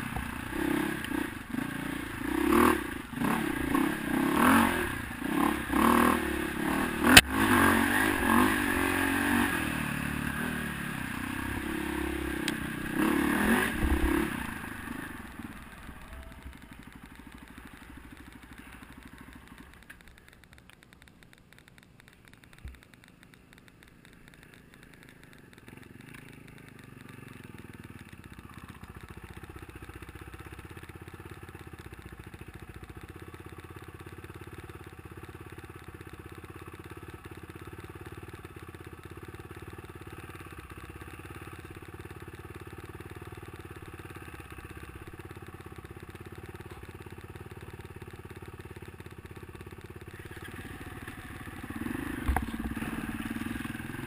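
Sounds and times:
dirt bike engine revving: 0:00.0 - 0:20.3, 0:50.1 - 0:54.0
dirt bike engine idling: 0:00.0 - 0:54.0.

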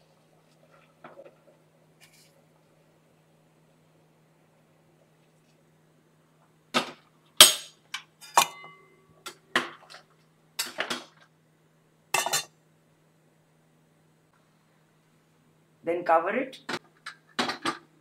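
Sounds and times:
metal cookware clanking: 0:07.4 - 0:08.9, 0:12.2 - 0:12.5.

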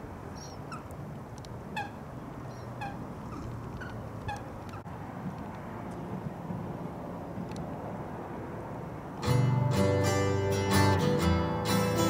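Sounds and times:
waterbirds calling: 0:00.0 - 0:04.9.

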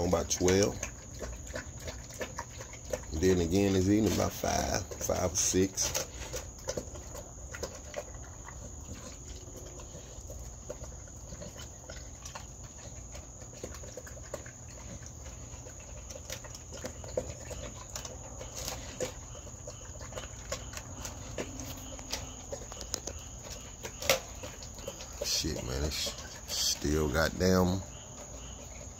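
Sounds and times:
dog crunching dry food in metal bowl: 0:00.0 - 0:28.9
high cricket trill: 0:00.0 - 0:28.9.

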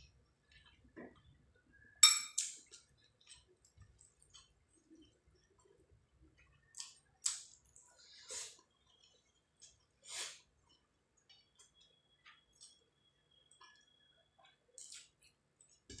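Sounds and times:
ringing clink against plate: 0:02.0 - 0:02.4.

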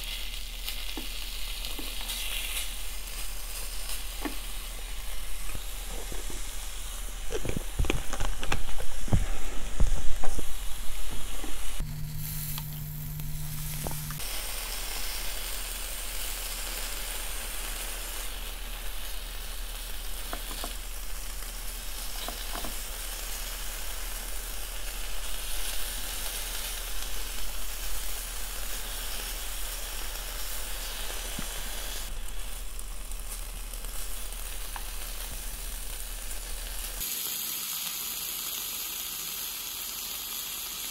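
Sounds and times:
beef sizzling on grill pan: 0:00.0 - 0:40.9
short low hum: 0:08.8 - 0:14.3.

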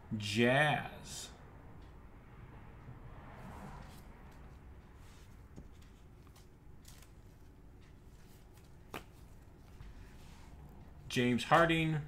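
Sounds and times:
trading cards rustling and clicking: 0:05.2 - 0:10.5.

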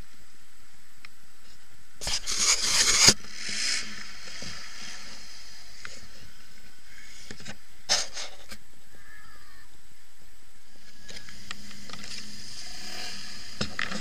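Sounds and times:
faint quad bike engine: 0:01.4 - 0:14.0
scraping near microphone: 0:01.5 - 0:08.6, 0:10.8 - 0:14.0.

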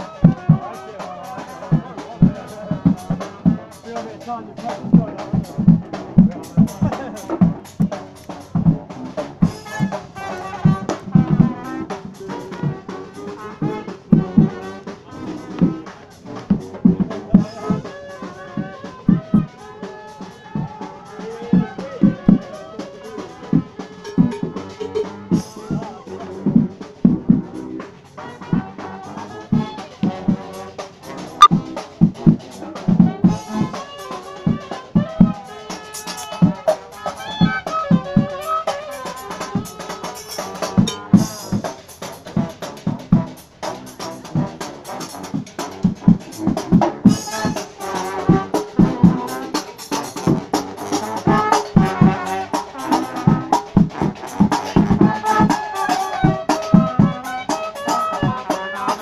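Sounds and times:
horns playing a riff: 0:00.0 - 0:26.6, 0:33.3 - 0:59.0
drum kit beat: 0:00.0 - 0:59.0
loud bass drum strokes: 0:04.6 - 0:17.9.

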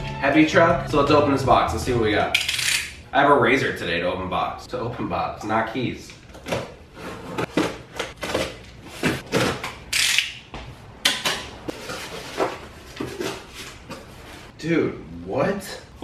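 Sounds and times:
cardboard scraping and rustling: 0:11.7 - 0:14.5.

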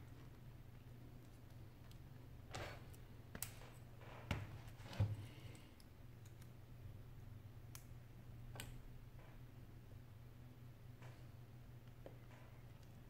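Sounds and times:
small clicks and taps: 0:08.5 - 0:09.4.

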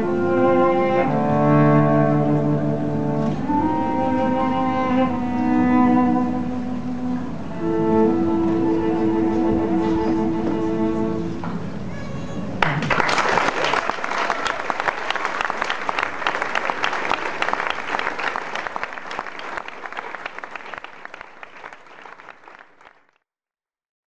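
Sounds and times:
audience applauding: 0:12.6 - 0:23.1.

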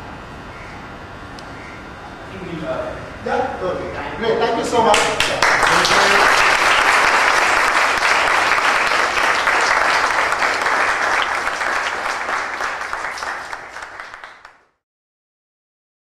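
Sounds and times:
audience applauding: 0:04.9 - 0:14.8.

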